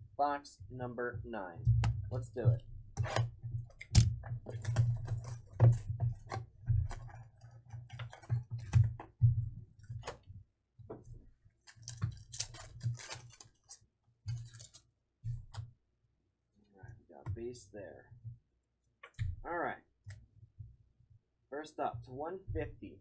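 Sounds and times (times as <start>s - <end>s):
foil packs crinkling: 11.6s - 14.8s.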